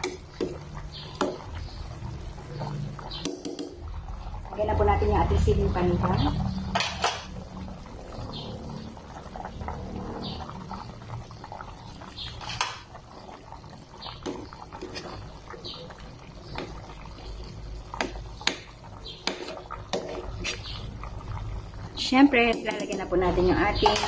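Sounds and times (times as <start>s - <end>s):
spoon stirring broth in pot: 11.5s - 21.5s.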